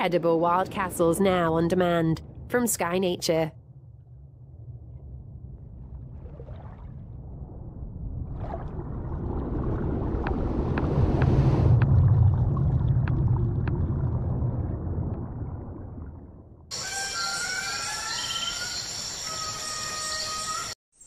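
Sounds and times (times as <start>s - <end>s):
deep muffled underwater rumble: 3.5s - 16.7s.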